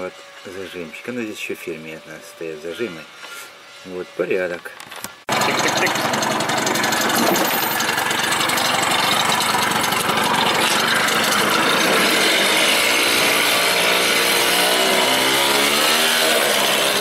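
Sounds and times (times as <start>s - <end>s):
scooter engine buzzing: 5.3s - 17.0s.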